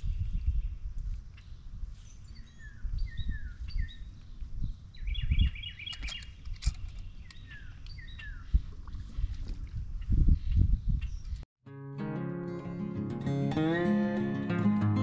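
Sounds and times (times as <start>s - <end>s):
songbirds chirping: 0.0s - 9.4s.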